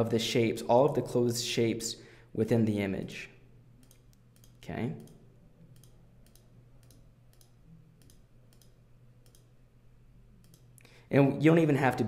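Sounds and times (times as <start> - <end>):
computer mouse clicks: 3.8 - 9.5, 10.4 - 10.8.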